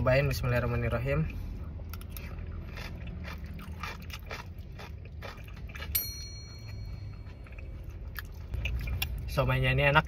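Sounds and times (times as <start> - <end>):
food chewing: 1.8 - 6.0, 6.8 - 9.2.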